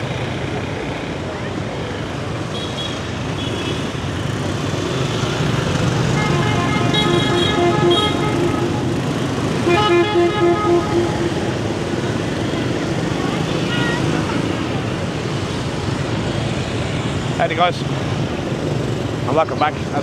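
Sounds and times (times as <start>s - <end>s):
scooter and motorbike traffic: 0.0s - 20.0s
vehicle horns beeping: 6.1s - 11.9s.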